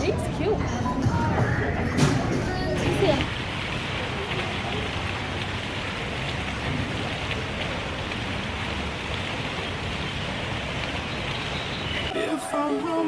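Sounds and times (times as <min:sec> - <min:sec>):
steady rain hiss: 0:01.4 - 0:13.0
faint raindrop ticks: 0:02.8 - 0:12.1.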